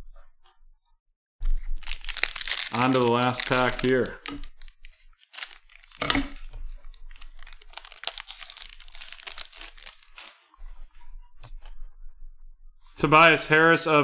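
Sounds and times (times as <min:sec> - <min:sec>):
foil wrapper crinkling and tearing: 0:01.6 - 0:10.4.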